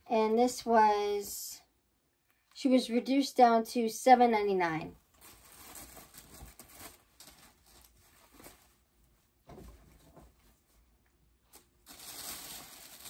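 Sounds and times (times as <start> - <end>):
felt calendar rustling: 5.2 - 10.9.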